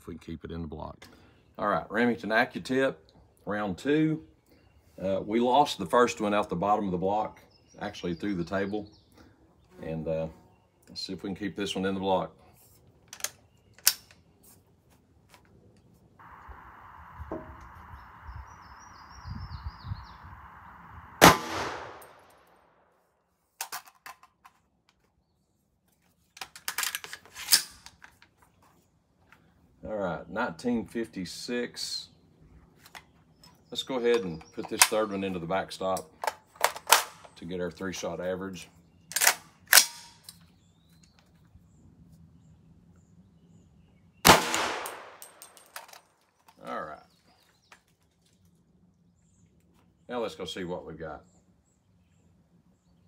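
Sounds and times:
metallic clicks of rifle handling: 0:13.0 - 0:14.3, 0:23.6 - 0:25.1, 0:26.4 - 0:28.3, 0:32.8 - 0:35.1, 0:35.9 - 0:37.4, 0:39.1 - 0:41.2, 0:44.5 - 0:46.6
rifle shot crack echoing: 0:20.4 - 0:22.8, 0:44.2 - 0:45.4.

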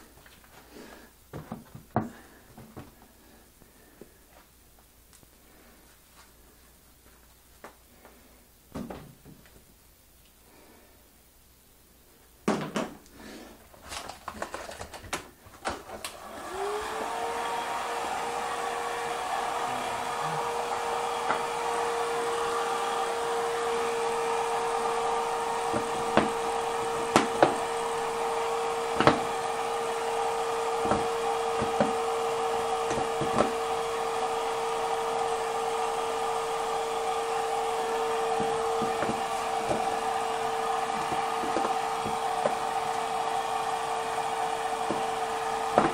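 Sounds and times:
hair dryer running: 0:15.6 - 0:45.9.

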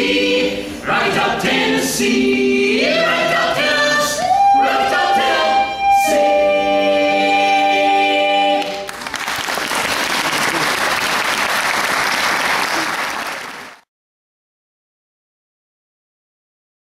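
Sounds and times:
vocal ensemble singing a chord: 0:00.0 - 0:08.9
applause: 0:08.6 - 0:13.9.

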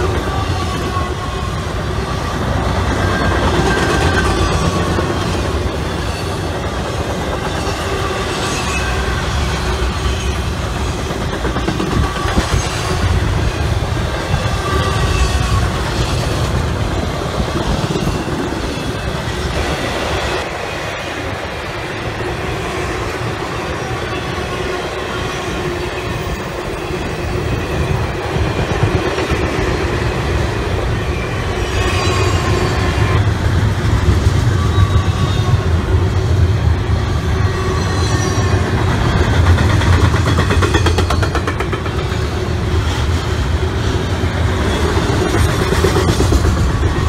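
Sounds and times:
train wheels rumbling on rail: 0:00.0 - 0:47.0
high wheel squeal: 0:07.4 - 0:10.6, 0:11.9 - 0:16.4, 0:30.9 - 0:33.3, 0:34.4 - 0:35.8, 0:37.2 - 0:38.8.

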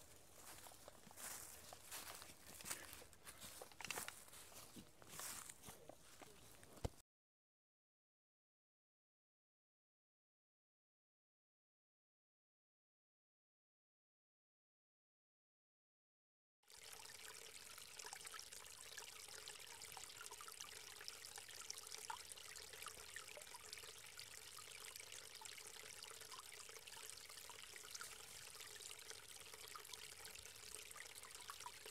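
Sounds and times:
creek trickling: 0:00.0 - 0:07.0, 0:16.7 - 0:31.9.

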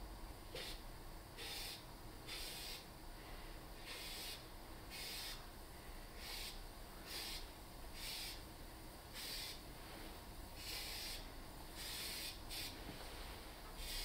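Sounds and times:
steady low hum: 0:00.0 - 0:14.0
spray gun hissing bursts: 0:00.6 - 0:00.8, 0:01.4 - 0:02.9, 0:03.8 - 0:05.4, 0:06.2 - 0:08.5, 0:09.1 - 0:12.9, 0:13.8 - 0:14.0.

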